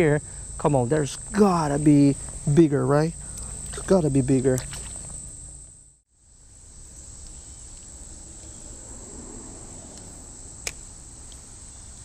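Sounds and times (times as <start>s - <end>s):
high-pitched insect chorus: 0.0s - 12.0s
low outdoor background: 0.0s - 12.0s.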